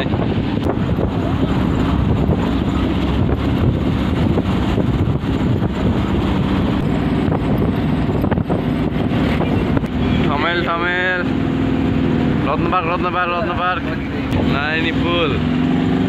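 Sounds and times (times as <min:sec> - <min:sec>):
wind on microphone: 0:00.0 - 0:12.5
bus engine and road noise: 0:00.0 - 0:16.0.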